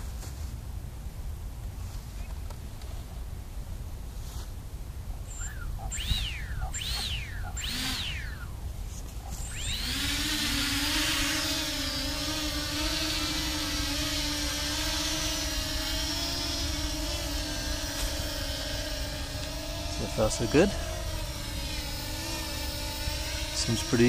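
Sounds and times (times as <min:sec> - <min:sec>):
quadcopter buzzing whine: 0:04.9 - 0:24.0.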